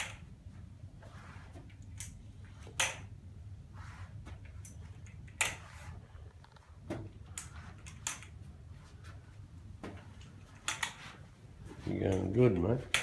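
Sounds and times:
crutches clicking: 4.3s - 8.5s, 9.8s - 13.0s.

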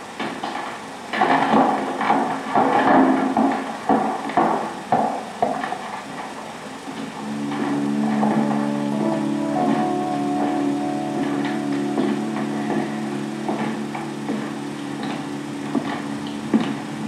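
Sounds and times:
footsteps on wooden floor: 11.6s - 17.0s.

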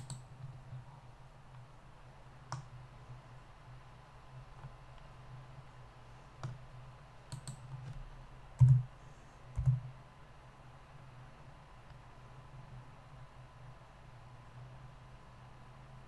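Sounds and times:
mouse and keyboard clicks: 0.0s - 0.3s, 7.3s - 8.0s
faint steady hum: 0.0s - 16.0s.

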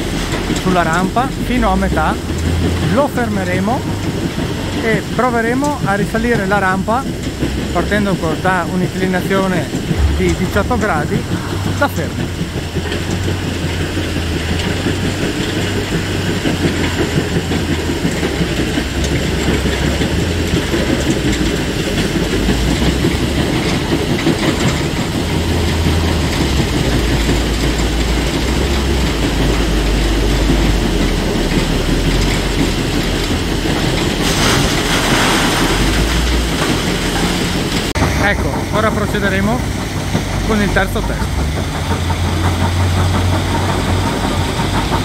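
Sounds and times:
diesel truck engines: 0.0s - 45.0s
rattling clatter: 0.0s - 45.0s.

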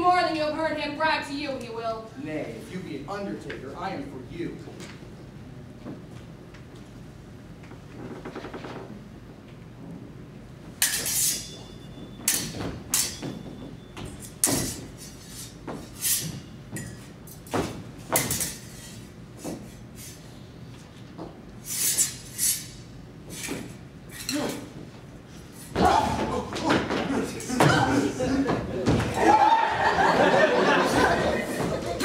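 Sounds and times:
swords clashing: 10.8s - 13.4s, 14.1s - 19.0s, 21.8s - 24.7s.

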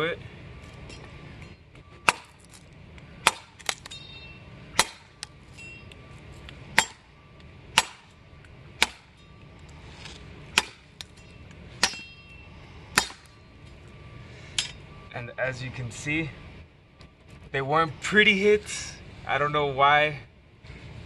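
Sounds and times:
machete chopping into wood: 2.0s - 2.4s, 3.2s - 4.0s, 4.8s - 5.1s, 7.8s - 8.1s, 8.8s - 9.1s, 10.5s - 10.8s.

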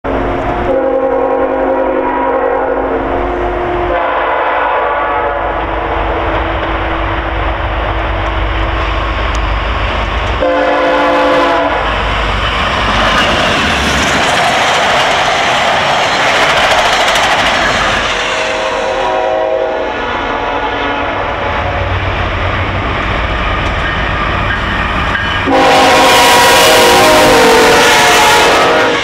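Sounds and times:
train rumble: 0.0s - 29.0s
train cars rushing and clattering past: 0.1s - 29.0s
locomotive air horn blasts: 0.6s - 7.0s, 10.4s - 12.0s, 18.4s - 22.0s, 25.4s - 29.0s.

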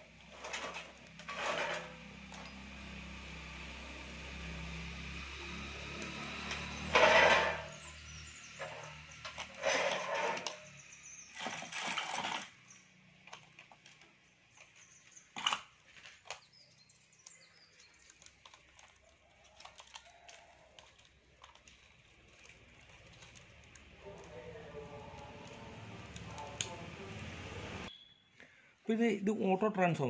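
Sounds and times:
rustling scrape of wires: 0.2s - 2.7s, 6.3s - 12.7s, 17.8s - 26.8s.

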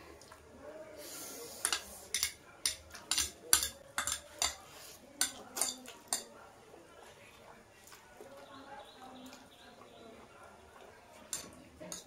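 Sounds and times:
forks clinking on plates: 1.6s - 4.6s, 5.2s - 6.3s, 11.3s - 12.0s.

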